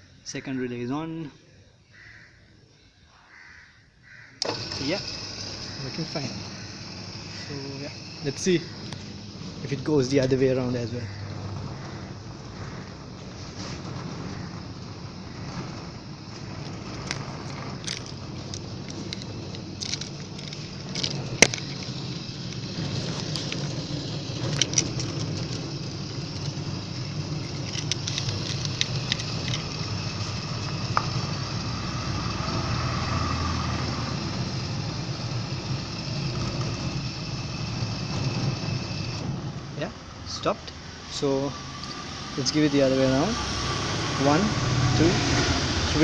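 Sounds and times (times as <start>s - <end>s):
gate motor humming: 4.4s - 46.0s
clicks and rattles: 11.2s - 31.2s.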